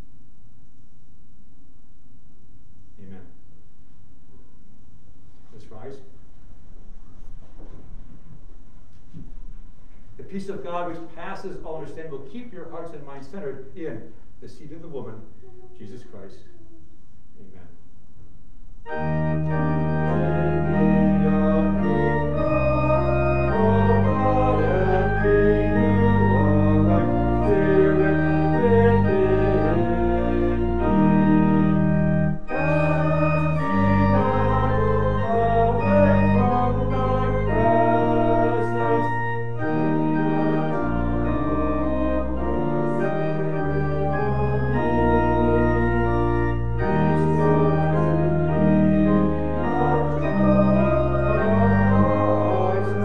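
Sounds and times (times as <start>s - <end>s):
organ playing chords: 18.8s - 53.0s.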